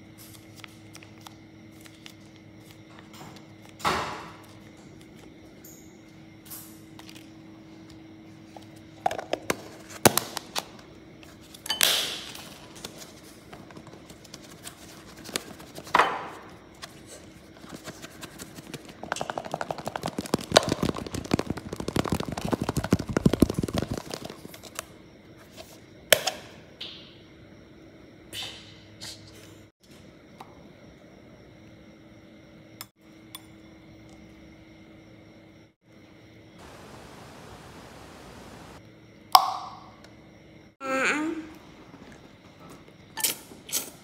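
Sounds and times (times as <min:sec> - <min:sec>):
food rattling in plastic cup: 0:19.0 - 0:24.8.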